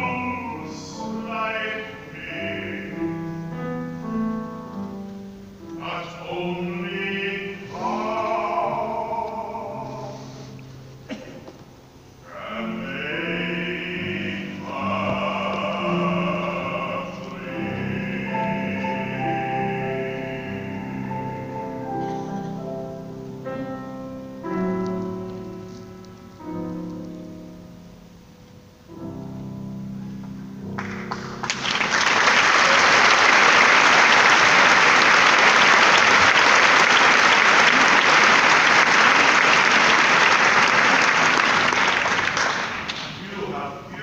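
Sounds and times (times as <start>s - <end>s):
grand piano chords: 0.0s - 44.0s
audience applause: 30.8s - 43.2s.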